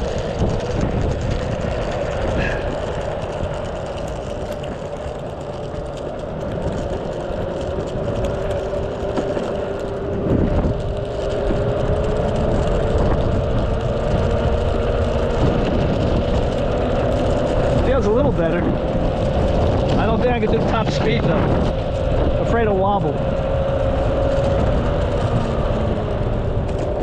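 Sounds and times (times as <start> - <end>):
electric motor and belt whine: 0.0 - 27.0
wheels rumbling on asphalt: 0.0 - 27.0.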